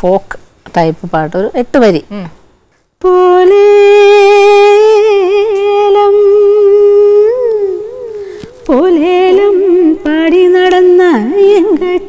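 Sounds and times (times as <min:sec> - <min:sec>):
woman singing unaccompanied: 0:03.0 - 0:12.0.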